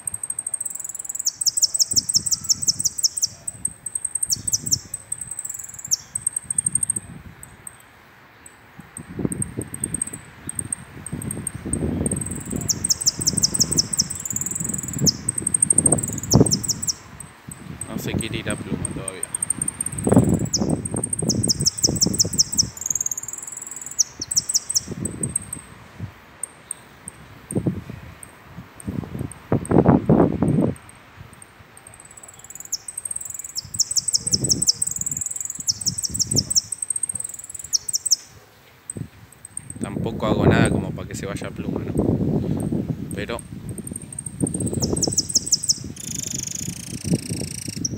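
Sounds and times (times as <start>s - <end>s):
finch singing: 0.0s - 25.6s, 31.8s - 39.9s, 43.3s - 47.9s.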